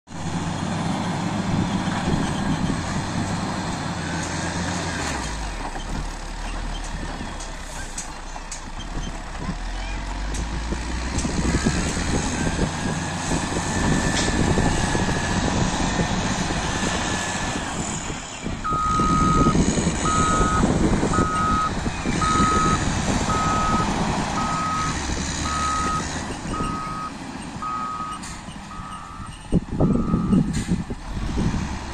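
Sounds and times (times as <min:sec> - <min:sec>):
diesel engine running: 0:00.1 - 0:31.9
reversing alarm beeping: 0:18.6 - 0:30.5.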